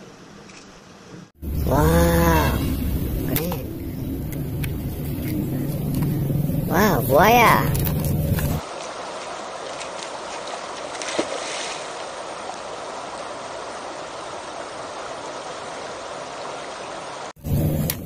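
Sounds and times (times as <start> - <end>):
river water rushing: 6.8 - 17.4.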